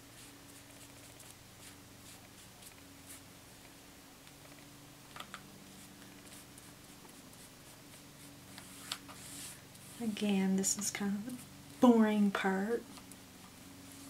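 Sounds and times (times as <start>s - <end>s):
foam brush swishing: 0.0s - 3.3s, 5.7s - 10.3s
steady low hum: 0.0s - 14.0s.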